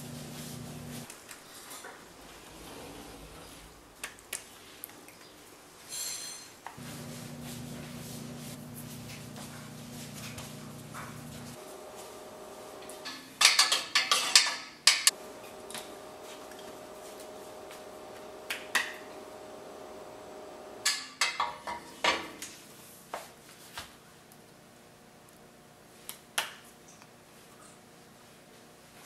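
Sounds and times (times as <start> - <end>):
faint steady hum: 0.0 - 4.0, 6.8 - 13.6, 15.1 - 21.1.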